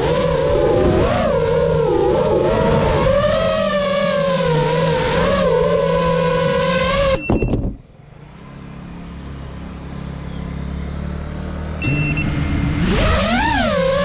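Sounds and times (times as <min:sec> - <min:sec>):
brief high steady tones: 0:11.8 - 0:12.4
low hum: 0:11.8 - 0:12.9
drone motors whining: 0:11.8 - 0:14.0.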